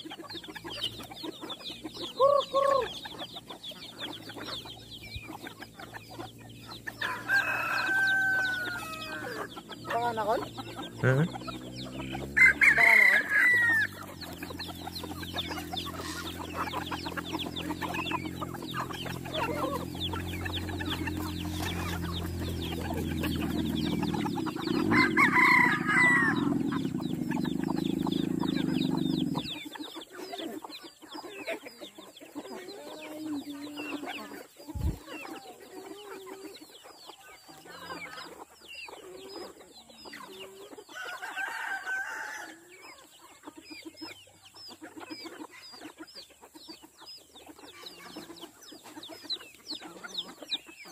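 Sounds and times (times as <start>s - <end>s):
chickens clucking: 0.0s - 50.9s
roosters crowing: 0.0s - 50.9s.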